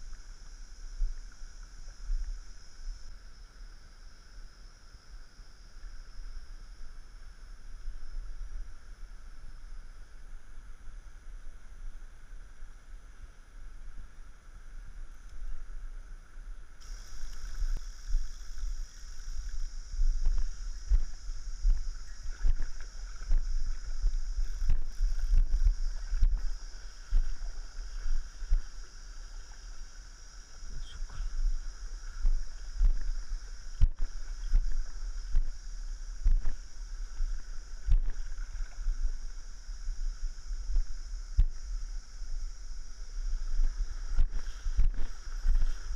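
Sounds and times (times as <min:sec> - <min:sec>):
low wind rumble: 0:00.0 - 0:45.9
water splashing in a stream: 0:16.8 - 0:45.9.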